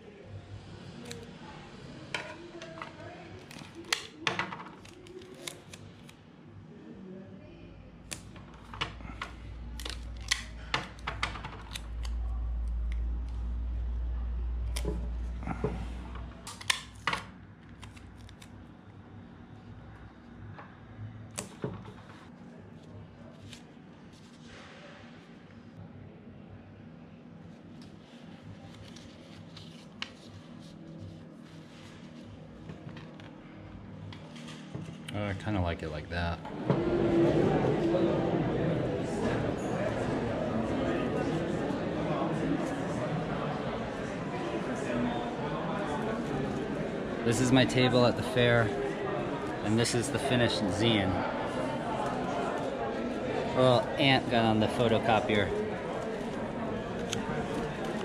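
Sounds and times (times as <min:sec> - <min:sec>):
tape and paper crinkling: 0:04.8 - 0:06.2, 0:27.7 - 0:32.3.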